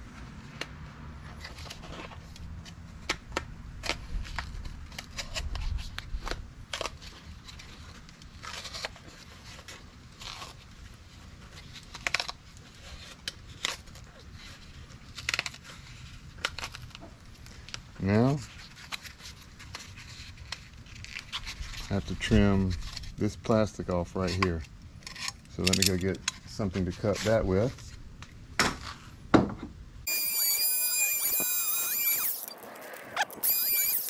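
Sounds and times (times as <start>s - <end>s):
tearing and crunching: 3.8s - 17.8s, 31.6s - 34.0s.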